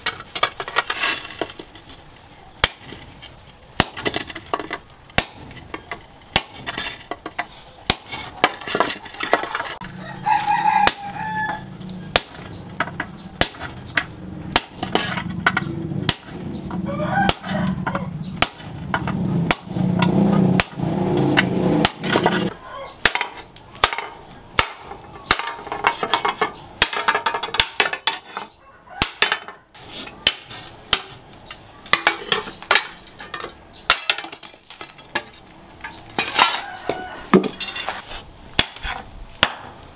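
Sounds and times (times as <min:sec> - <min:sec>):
rooster crowing: 0:09.8 - 0:11.8, 0:16.8 - 0:18.2, 0:22.5 - 0:23.0, 0:28.5 - 0:29.2, 0:36.3 - 0:37.6
hammer striking steel chisel: 0:17.3 - 0:28.4.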